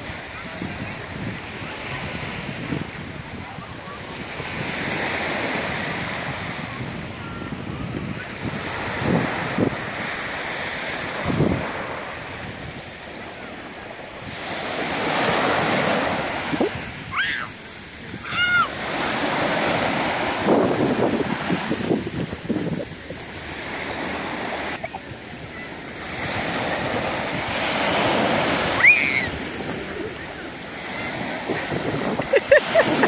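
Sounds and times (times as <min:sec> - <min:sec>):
surf washing up a beach: 0:00.0 - 0:33.0
wind buffeting microphone: 0:00.0 - 0:33.0
short high cries: 0:28.7 - 0:29.4.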